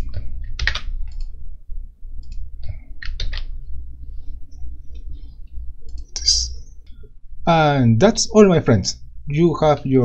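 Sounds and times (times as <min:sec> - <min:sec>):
computer keyboard clicks: 0:00.0 - 0:01.3, 0:02.2 - 0:03.5
low steady hum: 0:00.0 - 0:10.0.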